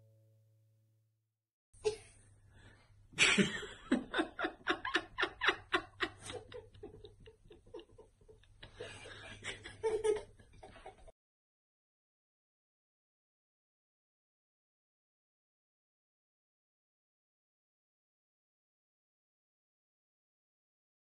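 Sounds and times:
girl laughing: 3.2 - 11.1.

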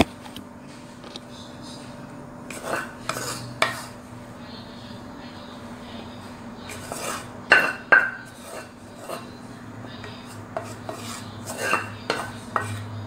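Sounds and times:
utensil scraping a wok: 2.4 - 4.1, 6.6 - 13.0.

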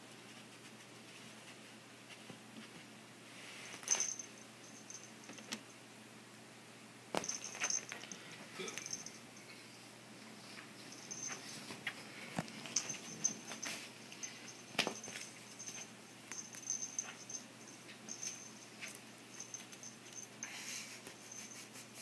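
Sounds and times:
small bell jingling: 3.8 - 5.5, 7.2 - 9.3, 10.9 - 11.6, 12.6 - 20.6, 21.2 - 21.8.

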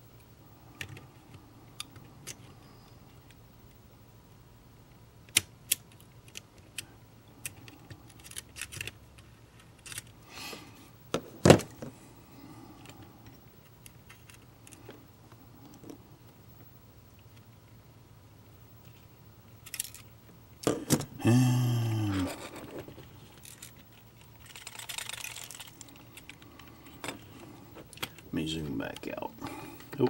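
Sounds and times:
metal parts clicking on plastic: 7.4 - 9.0, 22.3 - 27.3.

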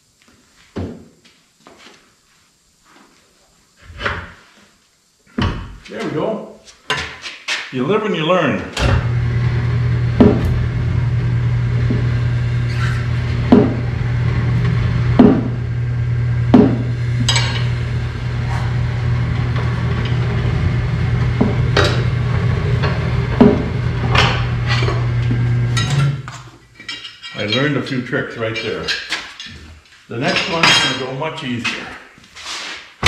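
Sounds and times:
steady low hum: 7.8 - 32.2
tire irons clanking on wheel rim: 21.2 - 22.2.

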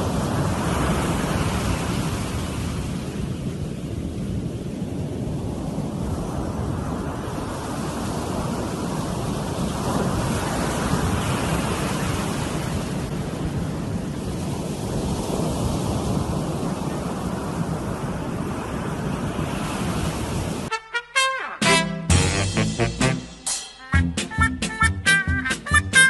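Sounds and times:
ocean surf breaking on sand: 0.0 - 20.7
wind rumbling on microphone: 0.0 - 20.7.

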